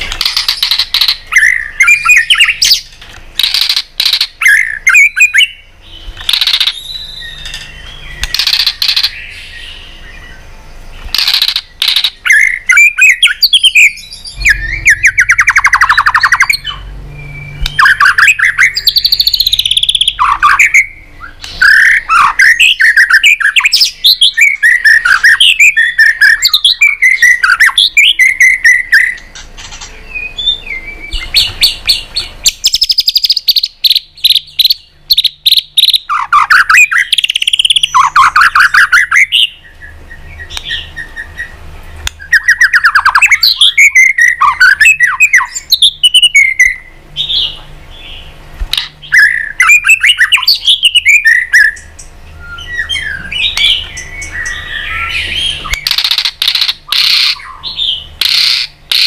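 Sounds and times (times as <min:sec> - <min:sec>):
bird singing whistles and trills: 0:00.0 - 0:59.0.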